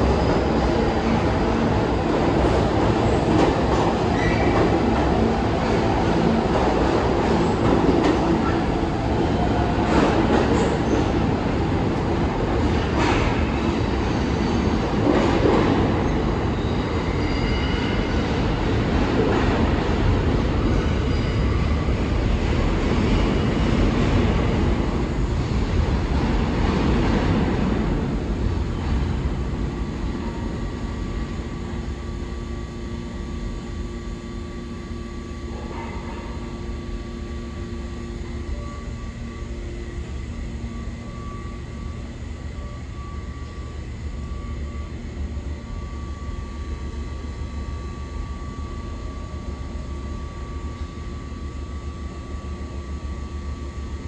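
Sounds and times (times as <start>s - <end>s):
subway train rumbling roar: 0.0s - 54.0s
station hum: 21.7s - 54.0s.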